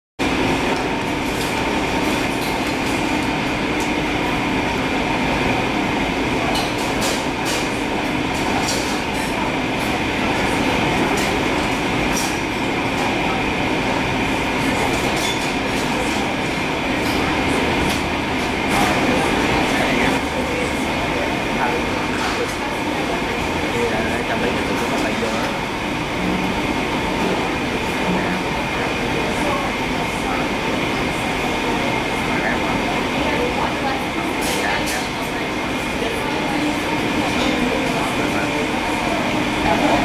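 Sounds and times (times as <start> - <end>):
machinery hum: 0.2 - 40.0.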